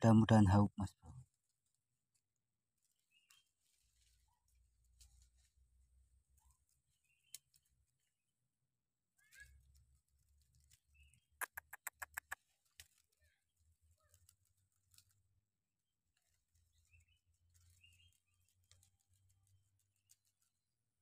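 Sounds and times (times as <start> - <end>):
sharp clicks: 11.4 - 12.4.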